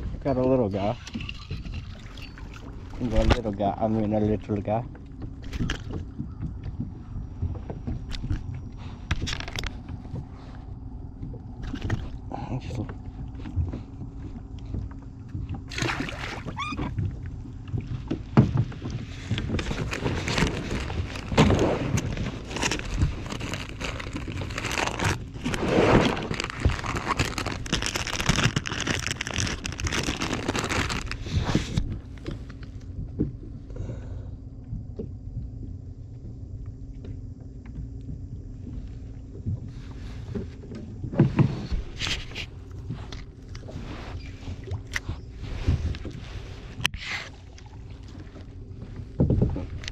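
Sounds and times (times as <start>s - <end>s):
steady low hum: 0.0s - 49.9s
plastic bag crinkling: 19.6s - 31.8s.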